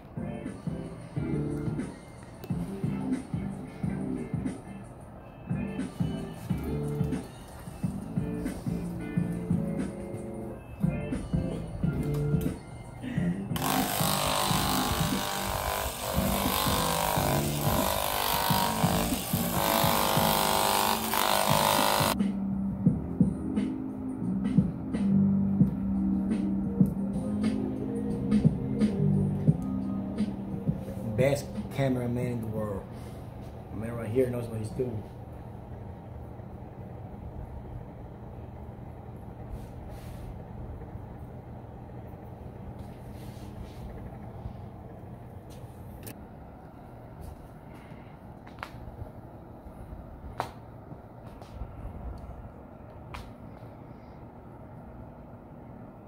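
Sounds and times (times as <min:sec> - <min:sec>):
machinery hum: 0:00.0 - 0:56.0
background music with bass line: 0:00.1 - 0:04.9, 0:05.5 - 0:15.3, 0:21.9 - 0:32.0
hair dryer blowing: 0:13.5 - 0:22.2
razor scraping beard: 0:13.6 - 0:22.2.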